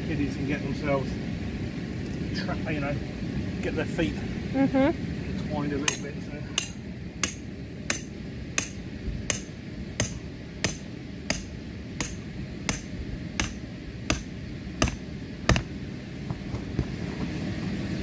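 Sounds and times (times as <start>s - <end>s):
hammer striking metal stake: 5.8s - 15.7s.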